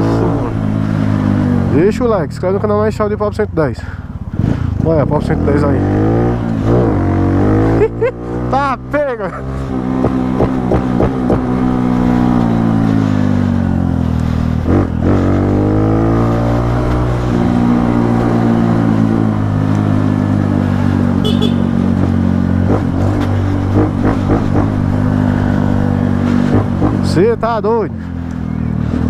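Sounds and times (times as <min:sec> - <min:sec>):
motorcycle engine running: 0:08.5 - 0:29.0.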